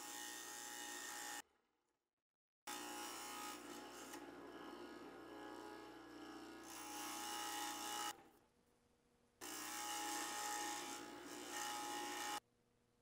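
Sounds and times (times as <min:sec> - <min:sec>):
scroll saw cutting wood: 0:02.7 - 0:08.2, 0:09.4 - 0:12.4.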